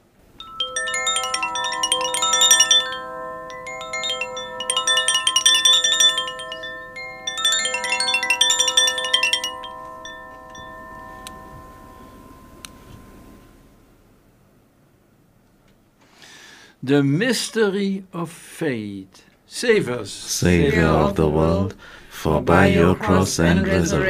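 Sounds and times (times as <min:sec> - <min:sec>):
small altar bells jangling: 0:00.4 - 0:13.6.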